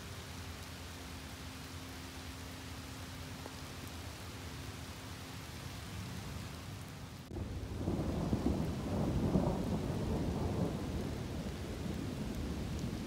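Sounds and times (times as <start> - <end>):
steady rain: 0.0 - 13.0
thunder rumble: 7.3 - 13.0.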